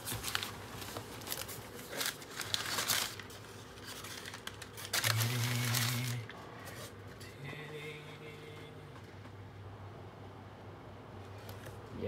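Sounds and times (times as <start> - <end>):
packaging rustling and crinkling: 0.0 - 7.0.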